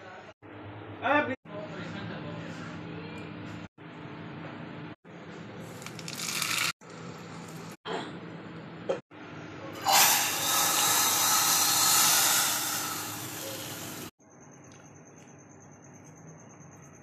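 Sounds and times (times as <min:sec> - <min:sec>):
hot oil sizzling: 0:05.7 - 0:06.7, 0:09.9 - 0:14.1.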